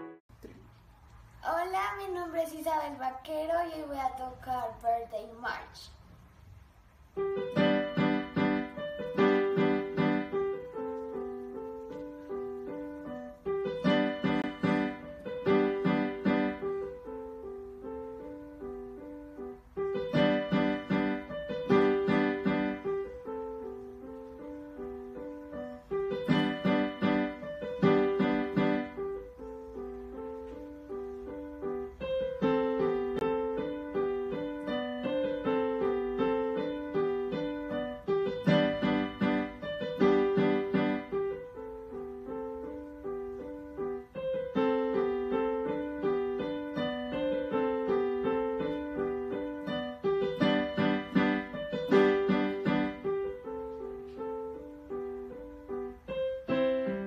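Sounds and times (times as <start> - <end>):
digital piano playing a march: 0.0 - 0.2, 7.2 - 57.0.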